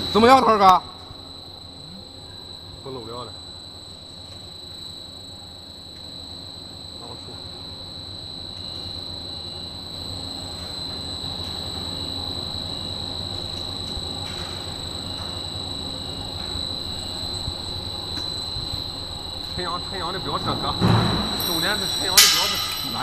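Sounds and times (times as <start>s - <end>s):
machine high whine: 9.0s - 23.0s.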